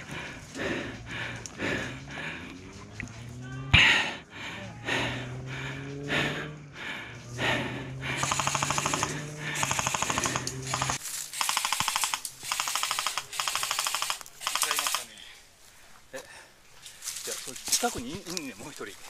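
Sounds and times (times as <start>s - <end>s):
airsoft guns firing full-auto bursts: 8.2s - 15.2s.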